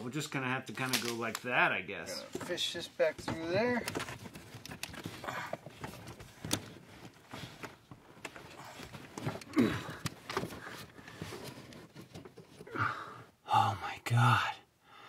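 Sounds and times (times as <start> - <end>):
cable knocks clicks and rustling: 0.7 - 1.6, 2.3 - 12.7
person grunting: 9.5 - 10.0.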